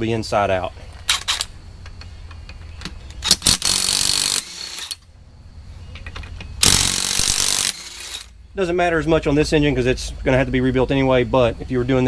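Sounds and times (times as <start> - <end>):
sharp metal clicks: 1.0 - 5.1, 5.9 - 8.4
power tool burst: 3.2 - 5.0, 6.6 - 8.3.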